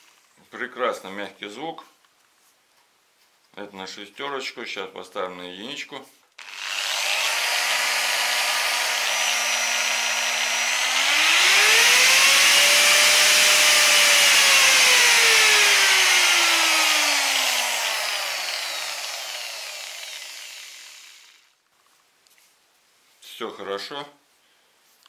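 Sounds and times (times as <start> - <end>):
angle grinder motor whine: 6.4 - 21.5.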